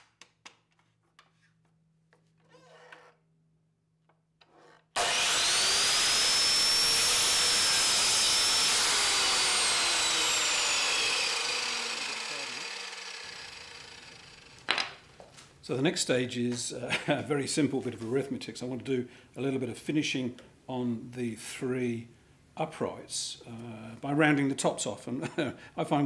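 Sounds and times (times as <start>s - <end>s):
mitre saw cutting wood: 4.4s - 14.7s.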